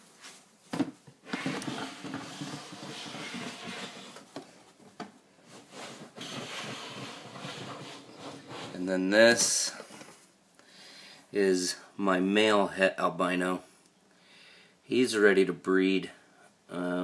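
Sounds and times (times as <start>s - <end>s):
plastic tub scraping in rack: 1.3s - 4.3s, 5.6s - 8.9s.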